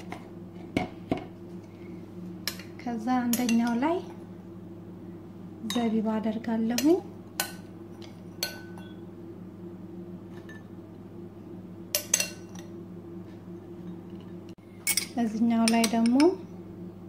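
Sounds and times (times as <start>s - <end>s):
steady low hum: 0.0s - 17.0s
metal spoon clinking against glass: 14.8s - 16.2s.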